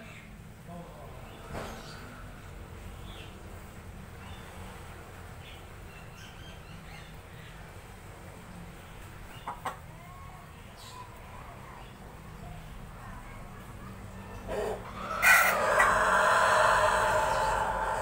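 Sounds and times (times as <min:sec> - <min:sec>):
chicken clucking: 0:09.3 - 0:09.9, 0:14.4 - 0:18.0.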